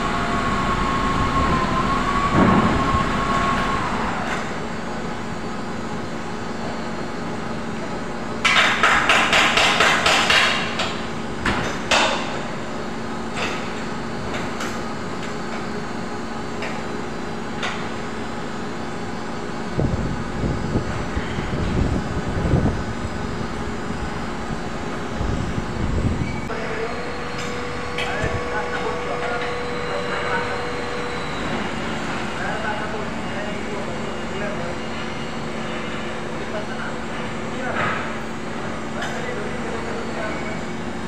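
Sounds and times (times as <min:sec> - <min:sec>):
hammer knocking on sheet metal: 0:08.5 - 0:10.9
steady low hum: 0:10.0 - 0:41.0.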